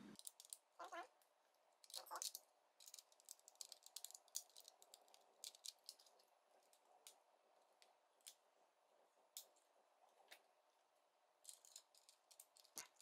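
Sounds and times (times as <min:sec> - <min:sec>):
plastic bricks clicking and rattling: 0:00.2 - 0:01.0, 0:01.8 - 0:07.2, 0:11.4 - 0:13.0.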